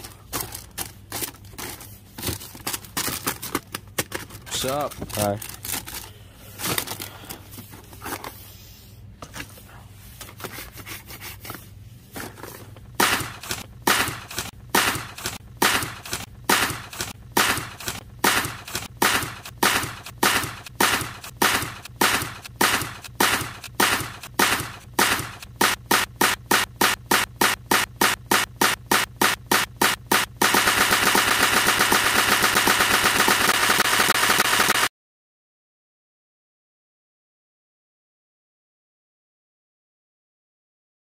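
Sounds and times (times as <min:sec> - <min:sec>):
sharp gunfire-like bangs: 0:13.0 - 0:34.9.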